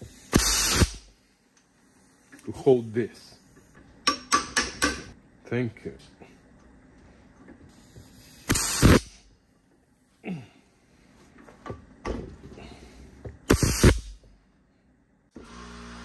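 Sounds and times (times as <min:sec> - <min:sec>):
compressed air blasts from blow gun: 0:00.0 - 0:01.2, 0:07.7 - 0:09.3, 0:13.5 - 0:14.2.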